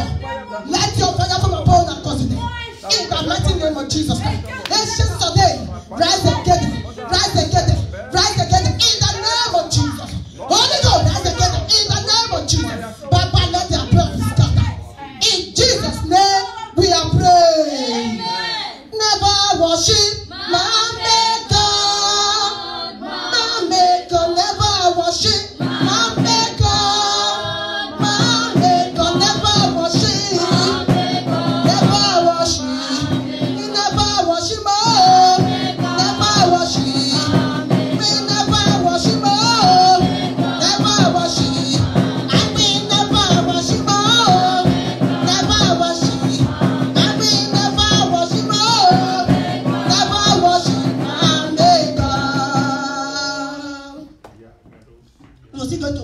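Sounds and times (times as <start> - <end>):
woman singing through pa: 0.0 - 54.2
backing music with beat: 25.3 - 53.5.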